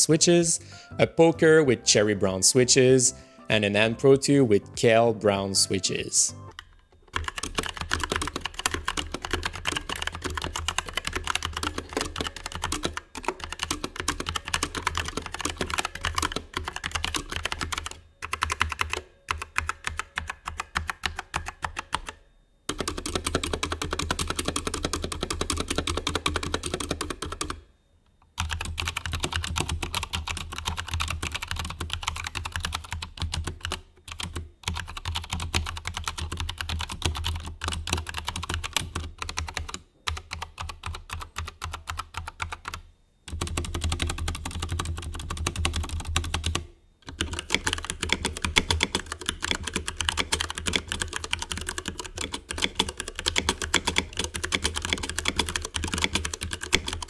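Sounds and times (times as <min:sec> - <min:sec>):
fast mechanical keyboard typing: 0:05.7 - 0:27.6, 0:28.4 - 0:57.0.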